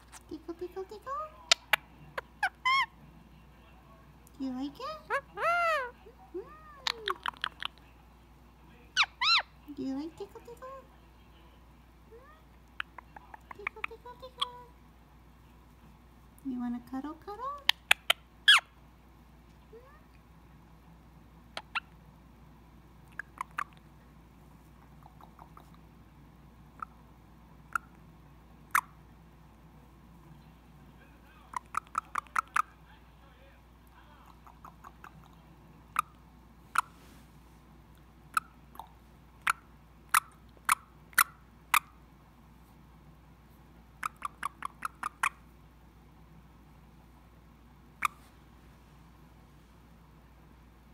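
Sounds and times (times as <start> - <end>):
parakeet clicking chirps: 6.8 - 7.8, 17.6 - 18.6, 31.5 - 32.7, 44.0 - 45.4
parrot clicking: 31.5 - 32.7.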